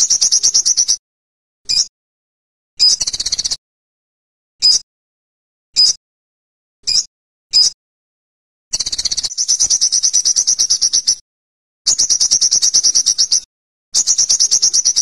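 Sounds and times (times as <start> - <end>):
bird singing high trills: 8.8 - 11.2.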